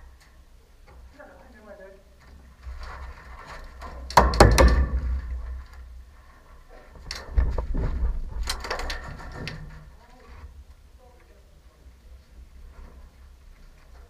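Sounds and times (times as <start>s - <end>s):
sharp clacks and knocks: 2.8s - 5.9s
wind rumble on microphone: 7.0s - 9.6s.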